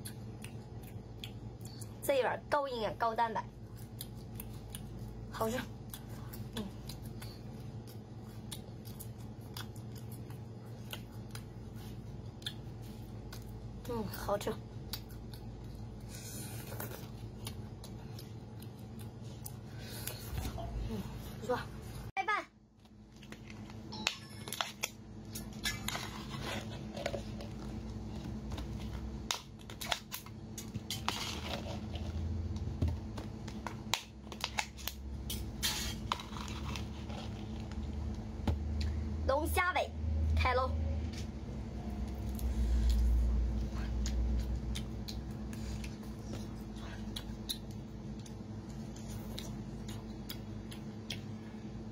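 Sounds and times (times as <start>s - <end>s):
low hum: 0.0s - 51.9s
crunchy chewing: 3.5s - 13.9s, 24.5s - 39.0s, 42.1s - 51.6s.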